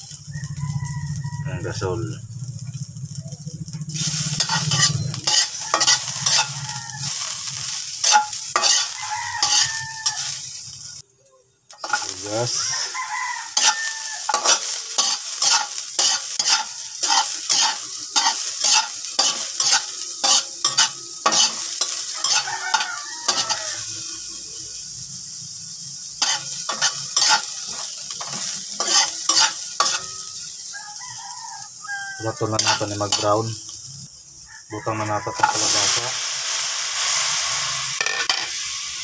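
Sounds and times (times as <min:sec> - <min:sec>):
frying sizzle: 0:00.0 - 0:39.0
metal spatula scraping wok: 0:03.8 - 0:11.0, 0:11.8 - 0:24.6, 0:26.0 - 0:34.1, 0:34.8 - 0:39.0.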